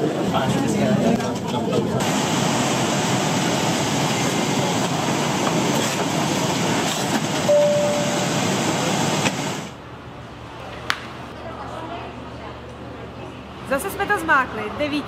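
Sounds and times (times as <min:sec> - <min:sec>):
airliner cabin rushing noise: 0:01.3 - 0:09.7
brief single tone: 0:07.5 - 0:08.4.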